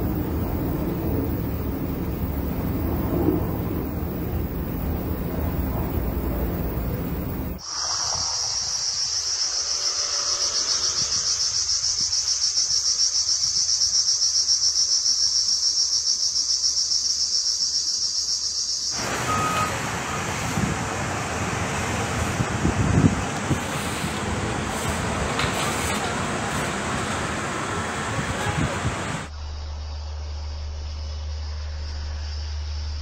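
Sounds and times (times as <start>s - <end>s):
rumbling wind noise: 0.0s - 9.4s, 19.0s - 29.3s
cicadas buzzing: 0.0s - 33.0s.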